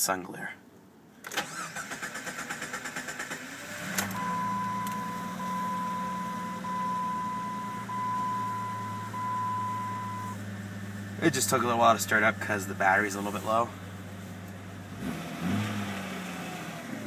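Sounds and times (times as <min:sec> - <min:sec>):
engine cranking and idling: 0:01.2 - 0:15.0
dashboard warning chime: 0:04.2 - 0:10.4.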